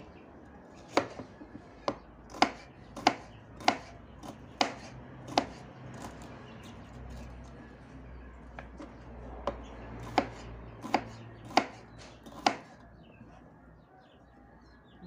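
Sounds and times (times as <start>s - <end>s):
knife chopping on wooden board: 0.8s - 7.3s, 8.5s - 12.8s.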